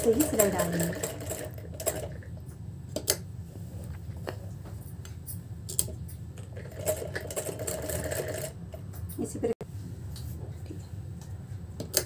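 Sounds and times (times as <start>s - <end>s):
sewing machine stitching: 0.0s - 2.2s, 6.6s - 8.6s.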